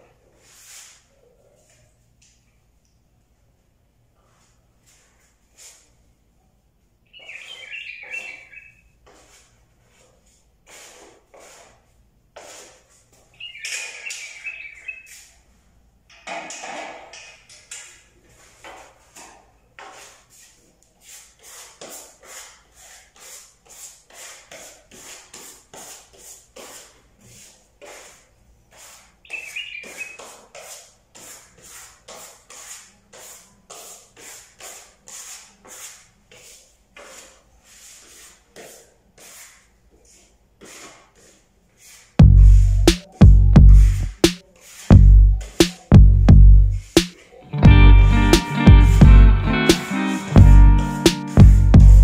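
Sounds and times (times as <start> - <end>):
hand tool scraping plaster wall: 9.0 - 14.2, 16.1 - 42.2.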